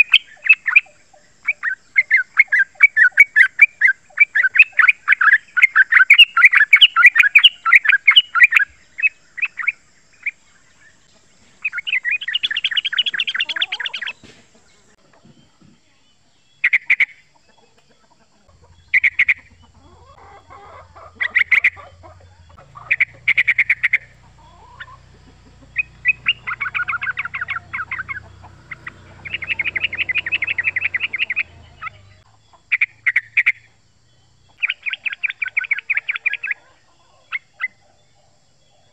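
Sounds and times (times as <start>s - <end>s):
bird chattering call: 0.0s - 10.8s, 11.6s - 14.3s, 18.5s - 33.7s, 34.5s - 36.6s.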